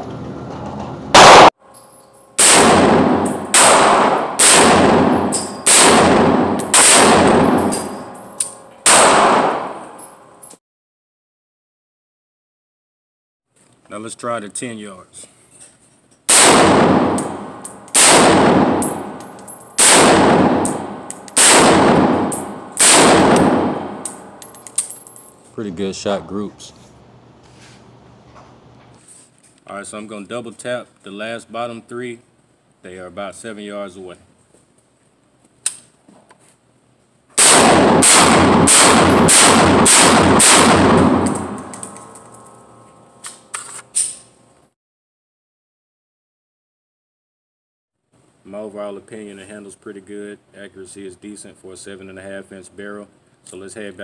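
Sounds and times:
gunshots ringing out indoors: 1.2 - 1.5, 2.4 - 10.4, 16.3 - 24.7, 37.4 - 42.6.

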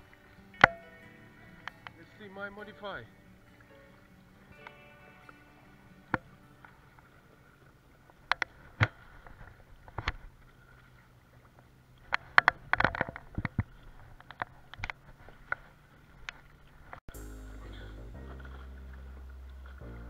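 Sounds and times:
water slapping kayak hull: 0.0 - 17.0.

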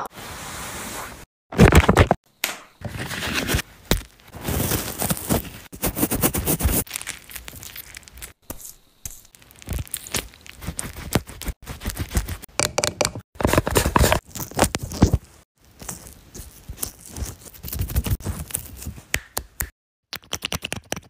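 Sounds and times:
sheet mask crinkling and peeling: 9.1 - 12.5.

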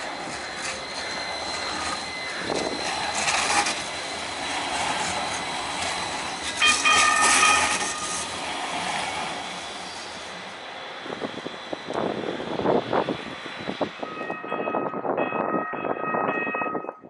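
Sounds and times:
high-pitched wheel squeal: 0.0 - 10.2, 14.0 - 15.0
tram wheels and motors rumbling: 0.0 - 17.0.

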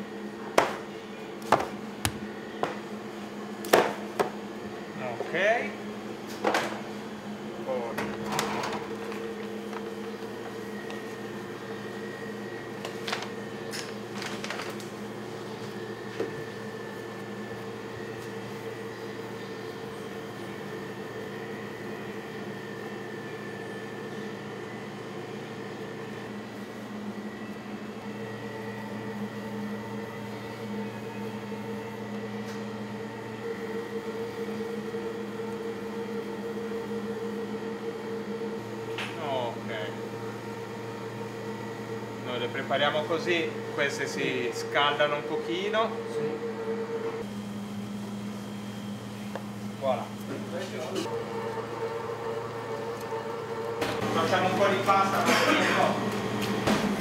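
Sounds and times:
kitchen equipment hum: 0.0 - 57.0
plastic bag rustling: 14.0 - 15.0.

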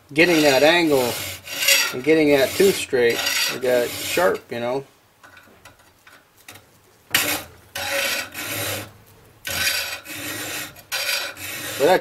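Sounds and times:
file rasping on saw teeth: 0.2 - 4.4, 7.2 - 8.9, 9.5 - 12.0.

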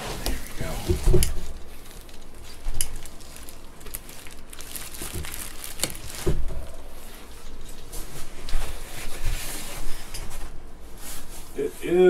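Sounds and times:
plastic wrapping crinkling: 0.1 - 11.6
knocks and thumps: 0.2 - 1.5.

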